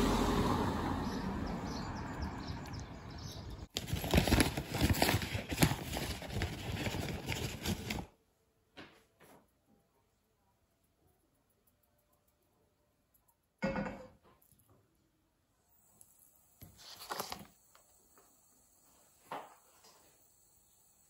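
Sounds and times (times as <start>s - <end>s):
street ambience: 0.0s - 3.7s.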